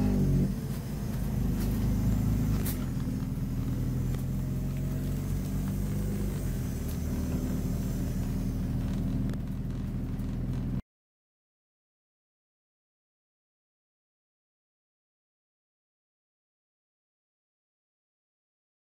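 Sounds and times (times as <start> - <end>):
bus diesel engine humming: 0.0 - 10.8.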